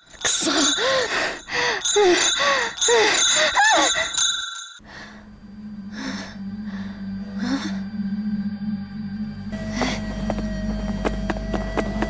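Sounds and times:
woman panting: 0.3 - 4.2, 4.8 - 7.9
low steady hum: 4.8 - 12.0.

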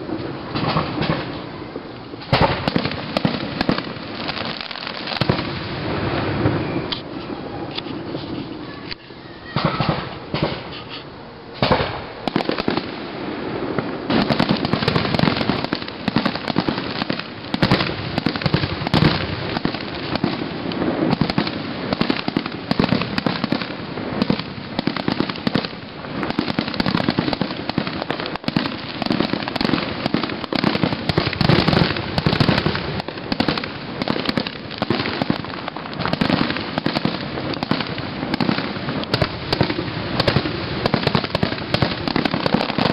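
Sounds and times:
fireworks bangs: 0.0 - 42.9
fireworks crackling: 0.0 - 42.9.

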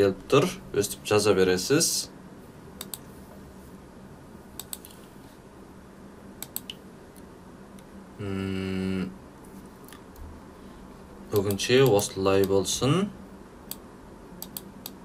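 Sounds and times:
computer mouse clicks: 2.8 - 3.1, 4.6 - 5.1, 6.4 - 7.9, 14.4 - 15.0
person humming: 8.2 - 9.2.

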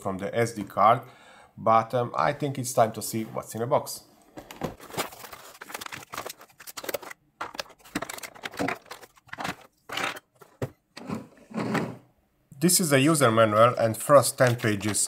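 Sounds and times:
plastic parts scraping and knocking: 4.3 - 12.1, 14.3 - 15.0
packaging rustling and crinkling: 4.4 - 10.8, 14.2 - 15.0.

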